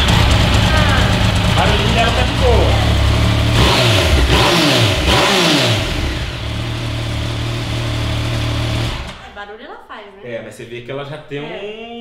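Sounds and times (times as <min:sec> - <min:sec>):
motorcycle engine revving and idling: 0:00.0 - 0:09.4.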